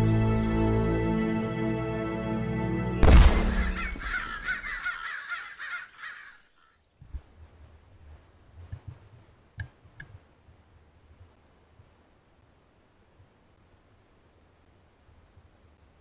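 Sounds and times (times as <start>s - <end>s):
loud hit: 3.0s - 4.5s
harsh animal calls: 3.5s - 6.5s.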